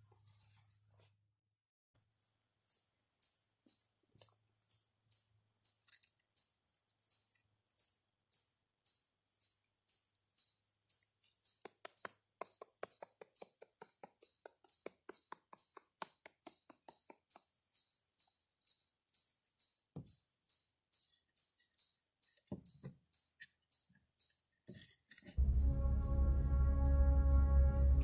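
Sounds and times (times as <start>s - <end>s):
faint high pulse: 25.4s - 28.0s.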